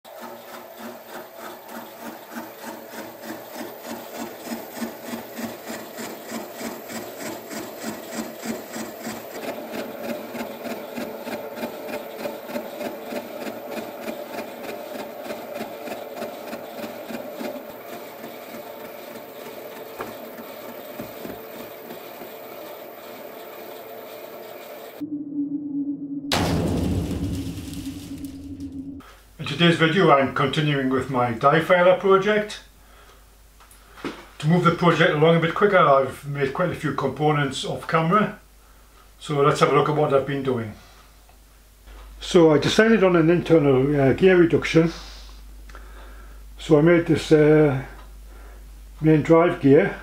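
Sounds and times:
milling machine cutting rhythmically: 0:00.1 - 0:25.0
steady machine hum: 0:00.1 - 0:29.4.

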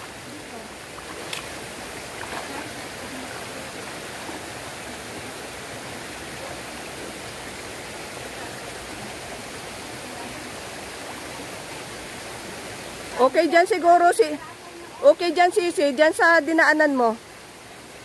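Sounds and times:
stream water rushing among boulders: 0:00.0 - 0:18.0.

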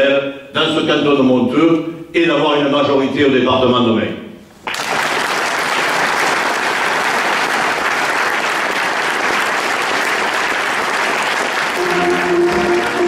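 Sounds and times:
audience clapping: 0:04.6 - 0:13.0
music with held notes: 0:11.7 - 0:13.0.

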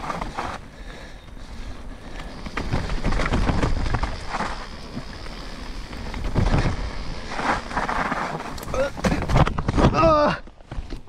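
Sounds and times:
bike tyres rolling over mud: 0:00.0 - 0:11.0
bike knocking over bumps: 0:02.2 - 0:11.0.

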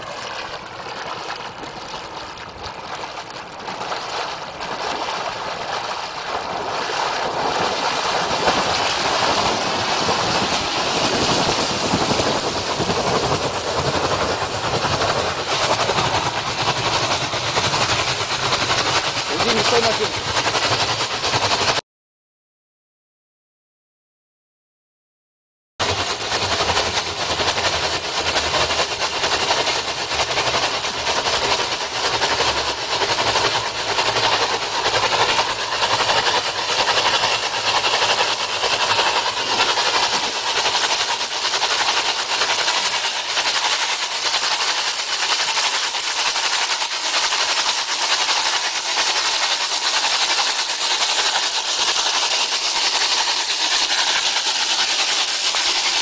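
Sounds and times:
drilling mud blasting out hissing: 0:07.1 - 0:21.8, 0:26.0 - 0:56.0.

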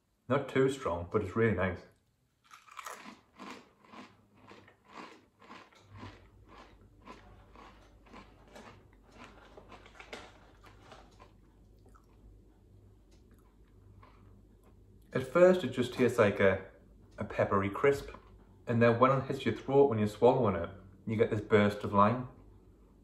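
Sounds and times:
person chewing crunchy crisp: 0:02.4 - 0:12.5, 0:13.2 - 0:14.8.

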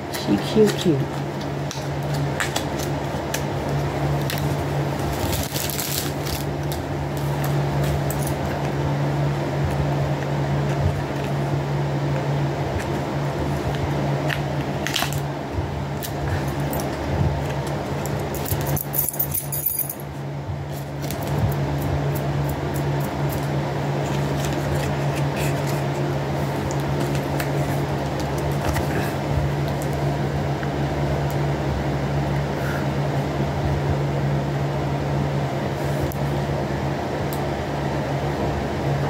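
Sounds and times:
electric fan humming: 0:00.0 - 0:39.0
jingly rattle: 0:18.4 - 0:20.0.

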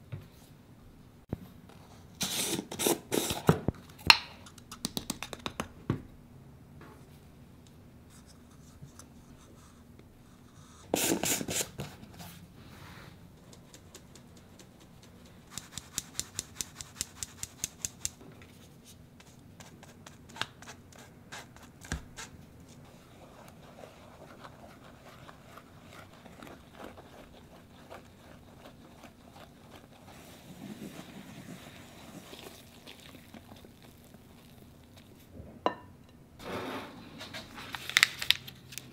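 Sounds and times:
whisk scraping in bowl: 0:22.8 - 0:34.6.

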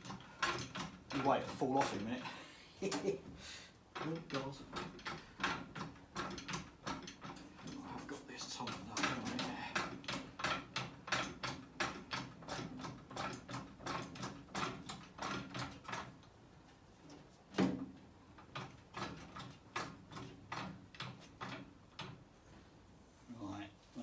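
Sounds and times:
trolley jack pumping clicks: 0:00.0 - 0:02.2.

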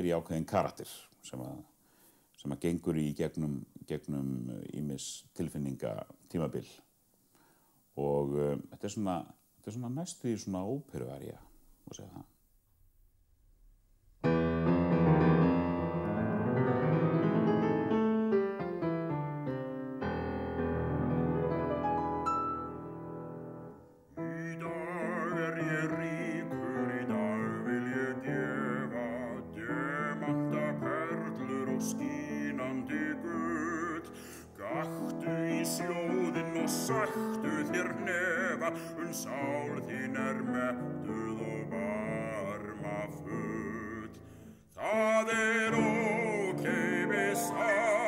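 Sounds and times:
grand piano: 0:14.2 - 0:48.0
man singing deep bass: 0:24.2 - 0:44.2, 0:44.8 - 0:48.0.

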